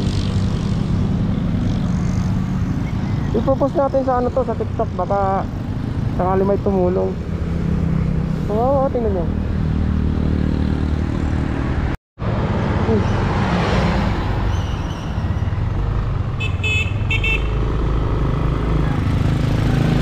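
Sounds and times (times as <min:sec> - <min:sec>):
road traffic passing: 0:00.0 - 0:20.0
vehicle horn tooting: 0:16.4 - 0:17.6.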